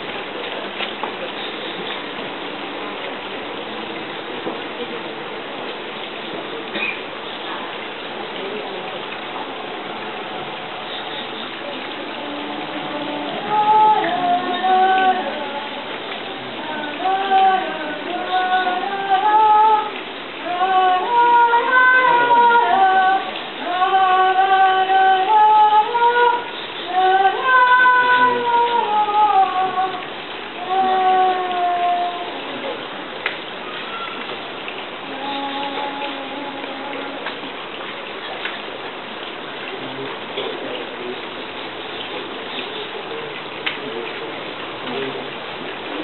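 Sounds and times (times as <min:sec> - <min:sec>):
rain hissing: 0:00.0 - 0:46.0
woman singing unaccompanied: 0:11.3 - 0:32.9, 0:34.7 - 0:37.7.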